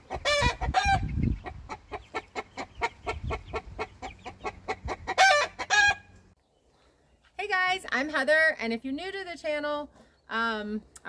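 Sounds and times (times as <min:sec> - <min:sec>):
loud chicken calls: 0:00.0 - 0:06.2
chickens clucking: 0:00.0 - 0:06.3.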